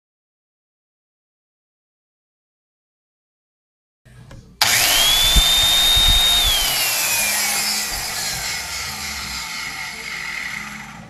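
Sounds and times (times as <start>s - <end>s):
grinder motor whine: 4.6s - 11.0s.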